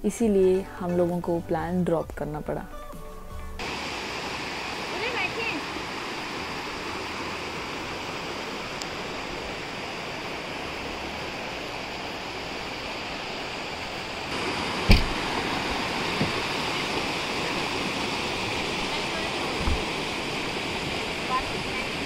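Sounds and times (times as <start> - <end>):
stream rushing over rocks: 3.6 - 22.0
sharp thump: 14.8 - 15.2.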